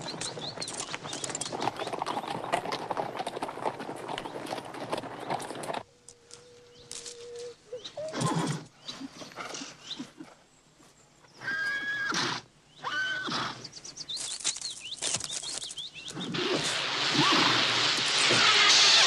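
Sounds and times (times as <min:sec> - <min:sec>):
horses neighing: 0:08.0 - 0:10.3
rush of noise: 0:16.3 - 0:19.0.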